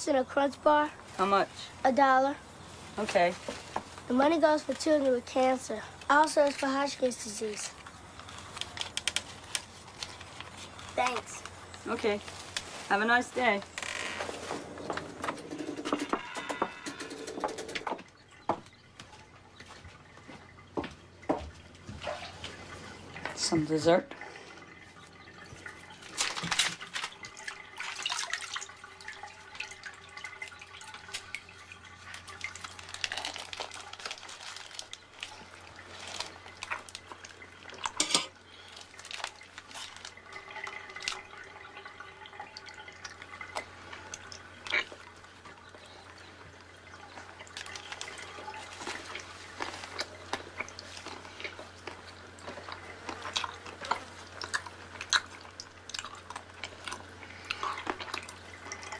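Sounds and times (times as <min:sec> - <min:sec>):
bathwater dripping and lapping: 0:00.0 - 0:58.9
foil crinkling: 0:02.6 - 0:14.8, 0:25.8 - 0:41.4, 0:47.1 - 0:55.8.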